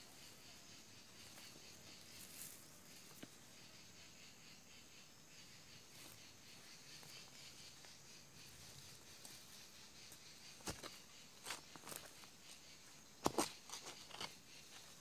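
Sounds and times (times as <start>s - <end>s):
soft clicks of hands handling soil: 2.2s - 3.4s.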